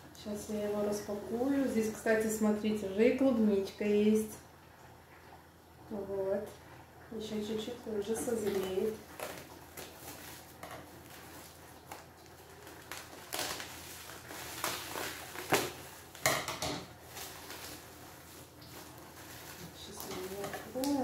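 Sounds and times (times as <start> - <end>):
plastic wrapping crinkling: 8.3 - 21.0.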